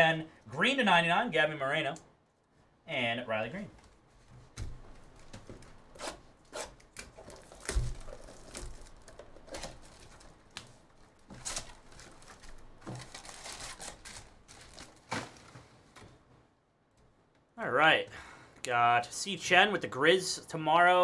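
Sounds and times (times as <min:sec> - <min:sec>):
cardboard and packs rustling: 0:07.0 - 0:16.2.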